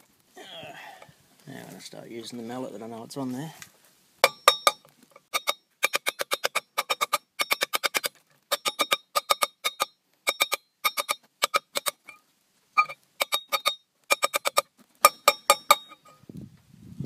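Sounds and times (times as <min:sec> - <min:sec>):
mallet tapping on metal: 0:04.2 - 0:07.8, 0:15.1 - 0:16.0.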